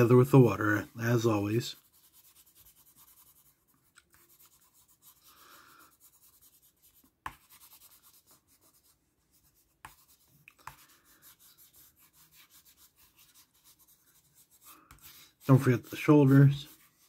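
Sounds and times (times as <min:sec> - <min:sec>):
pencil scratching on paper: 0:00.0 - 0:17.0.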